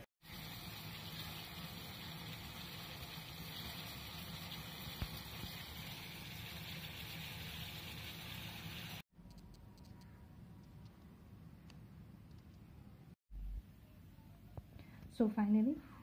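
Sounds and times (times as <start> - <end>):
water boiling in saucepan: 0.0 - 9.0.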